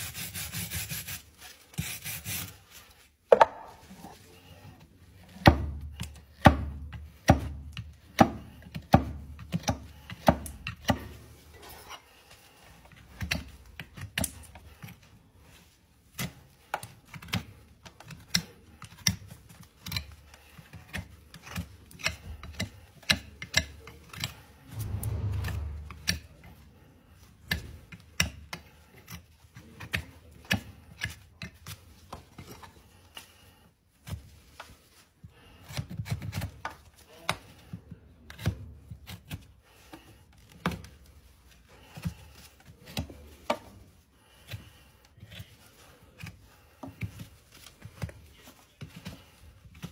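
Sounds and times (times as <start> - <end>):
knife cutting horse hoof: 5.2 - 12.1, 12.8 - 25.4, 26.0 - 33.3, 35.4 - 41.0, 41.7 - 49.9
low rumble: 24.6 - 26.8.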